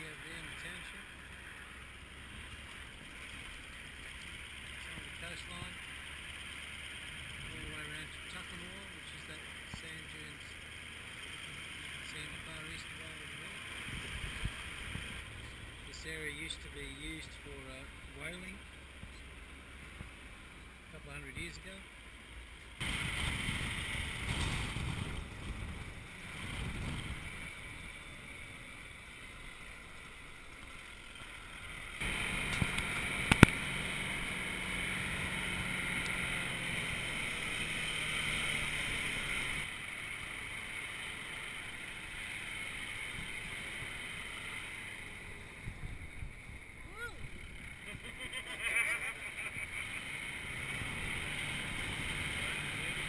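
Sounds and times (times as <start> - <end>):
vehicle engine running: 0.0 - 53.0
wind noise on microphone: 22.8 - 27.2.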